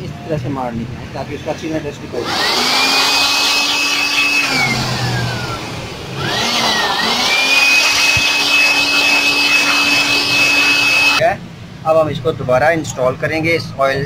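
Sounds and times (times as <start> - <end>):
air blower rushing with whine: 2.1 - 11.2.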